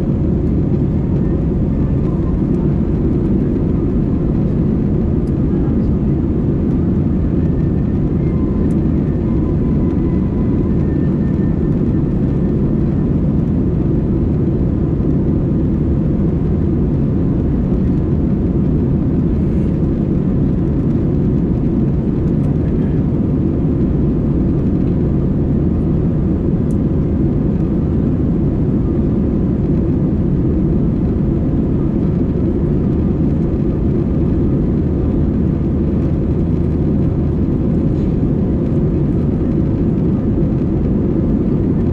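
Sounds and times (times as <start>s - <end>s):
airliner cabin rumble: 0.0s - 41.9s.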